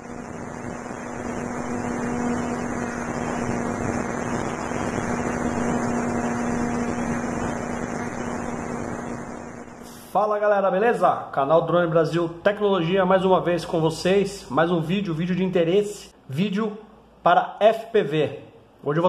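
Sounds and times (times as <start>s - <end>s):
electric motor and propeller hum: 0.0s - 9.9s.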